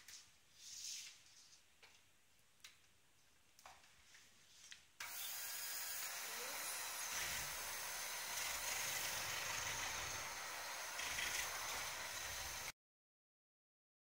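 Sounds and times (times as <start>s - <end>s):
electric hand mixer running: 5.0s - 12.8s.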